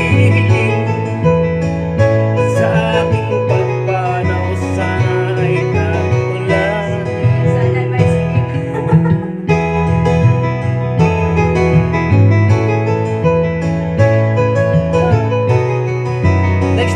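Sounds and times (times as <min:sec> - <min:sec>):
man singing: 0:00.0 - 0:01.6, 0:02.2 - 0:08.8, 0:14.8 - 0:15.5
acoustic guitar: 0:00.0 - 0:16.9.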